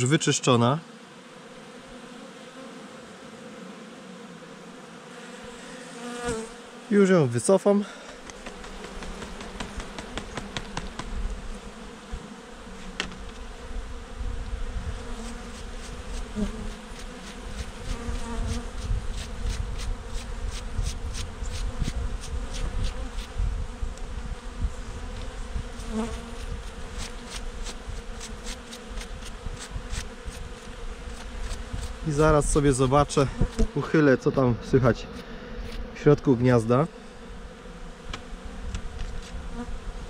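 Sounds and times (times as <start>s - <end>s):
honeybees humming: 0.0s - 40.0s
brush scratching comb frame: 15.2s - 23.3s, 26.0s - 32.3s.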